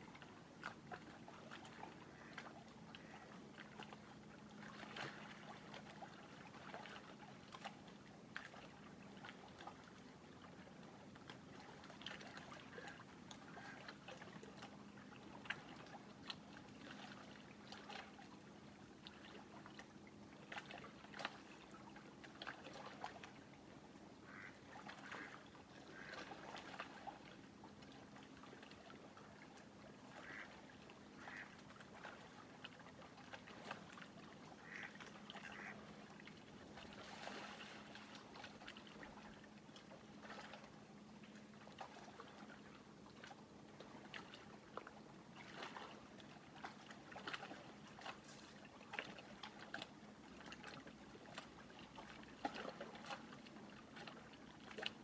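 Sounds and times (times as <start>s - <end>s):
lake water lapping at shore: 0.0s - 55.0s
duck calls: 24.3s - 25.3s, 30.2s - 30.5s, 31.2s - 31.5s, 34.6s - 35.8s.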